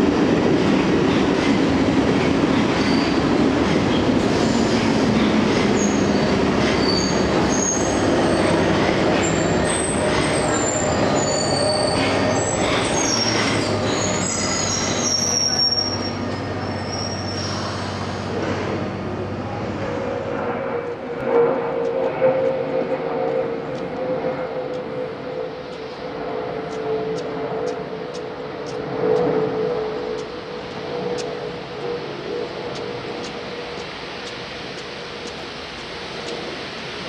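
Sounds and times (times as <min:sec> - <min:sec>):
train rumble: 0:00.0 - 0:37.0
train wheels squealing on rails: 0:01.1 - 0:18.8.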